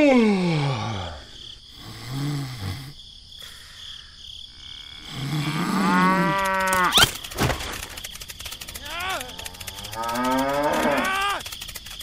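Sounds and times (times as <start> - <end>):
cow mooing: 5.4 - 7.0, 8.9 - 11.4.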